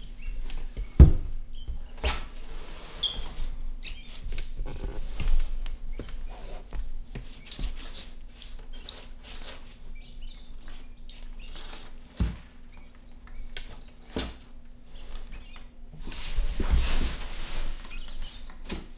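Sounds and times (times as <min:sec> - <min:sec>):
claws scratching on bathtub: 0:06.3 - 0:12.2
quail chick peeping: 0:08.6 - 0:15.8.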